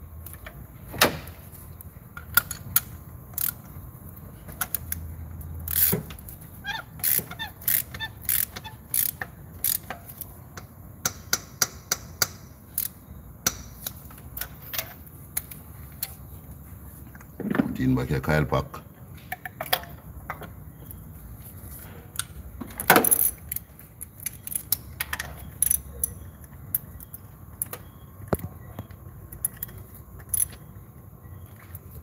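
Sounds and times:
ratchet wrench clicking: 2.2s - 3.8s, 5.6s - 10.4s, 11.1s - 14.5s, 23.0s - 27.7s, 29.3s - 30.6s.

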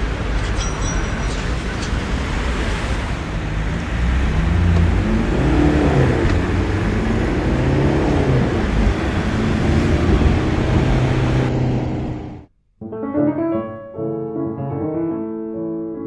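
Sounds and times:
street traffic: 0.0s - 12.5s
car engine revving: 2.8s - 12.5s.

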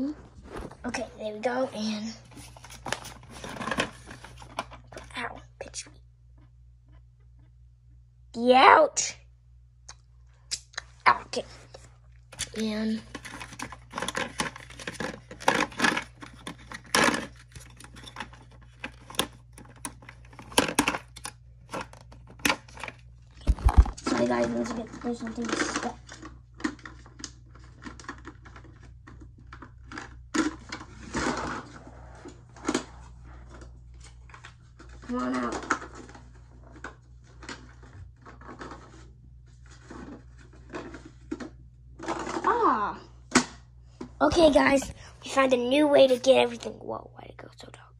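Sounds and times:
rustling inside plastic toy: 0.0s - 5.2s, 11.3s - 42.6s
plastic toy clicks and scrapes: 12.4s - 23.0s.

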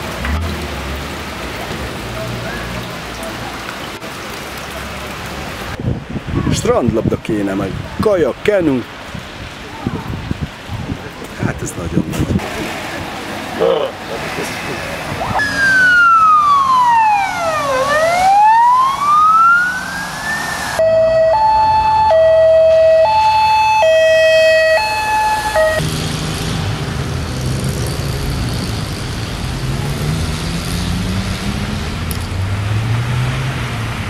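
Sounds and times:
vehicle engines: 0.0s - 6.0s, 8.6s - 34.0s
tyres rushing through water: 0.0s - 34.0s
fire engine siren: 15.2s - 25.9s.

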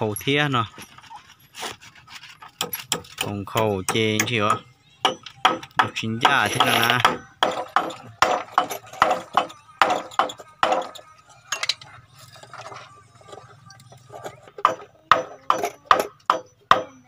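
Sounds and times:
hammer striking nails into wood: 3.9s - 10.9s.

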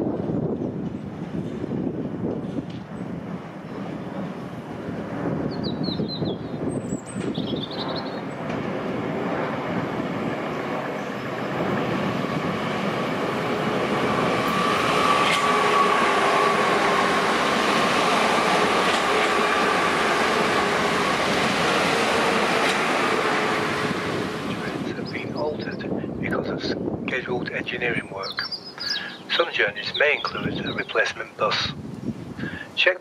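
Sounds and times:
electric train rumbling past: 0.0s - 32.9s
bird chirps: 5.5s - 8.3s, 28.0s - 31.1s.

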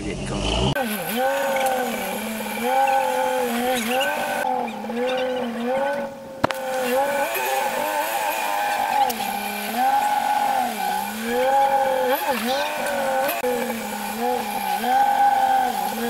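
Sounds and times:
engine revving under load: 0.0s - 16.0s.

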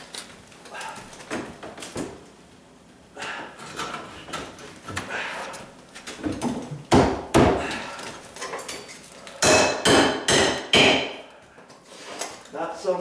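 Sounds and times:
hammer blows with metallic ring: 9.4s - 11.2s.

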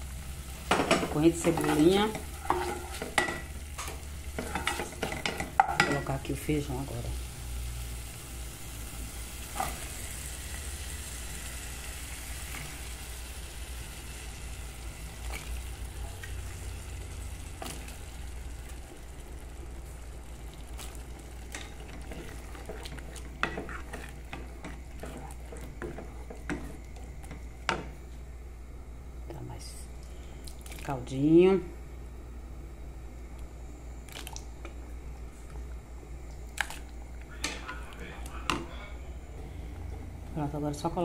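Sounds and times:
sizzling in metal pot: 0.0s - 28.1s
wooden spoon stirring beans: 1.1s - 6.2s, 20.5s - 27.8s.

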